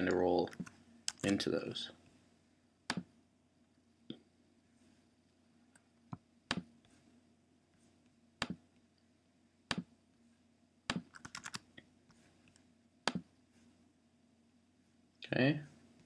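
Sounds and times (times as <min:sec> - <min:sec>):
computer keyboard typing: 0:00.5 - 0:01.4, 0:10.9 - 0:11.6.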